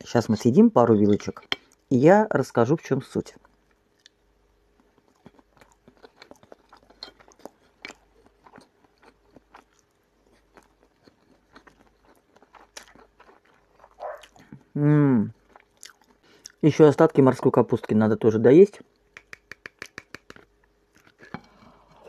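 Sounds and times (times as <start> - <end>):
person chewing crunchy food: 3.4 - 16.6, 19.0 - 22.0.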